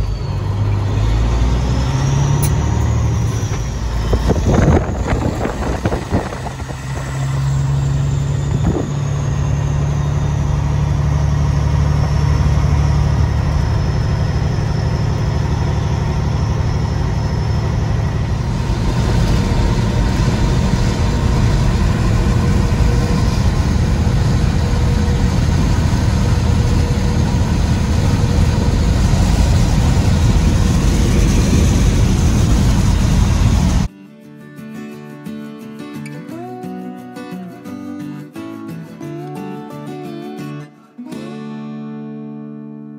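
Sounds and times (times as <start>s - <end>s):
road and wind noise: 0.0s - 33.9s
truck diesel engine: 0.0s - 33.9s.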